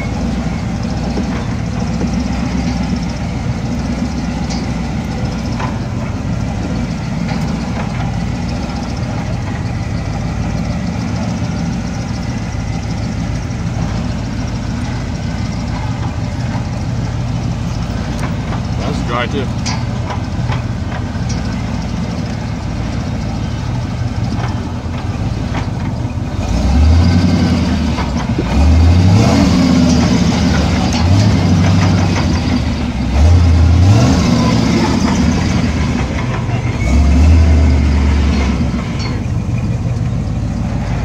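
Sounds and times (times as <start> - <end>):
off-road vehicle engine revving: 0.0 - 41.0
vehicle knocks and rattles: 0.0 - 41.0.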